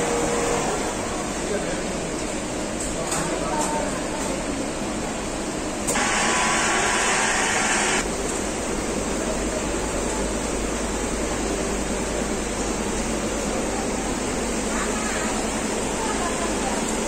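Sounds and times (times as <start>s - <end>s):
quilting machine running: 0.0s - 1.9s, 5.9s - 10.4s
loud hiss: 5.9s - 8.0s.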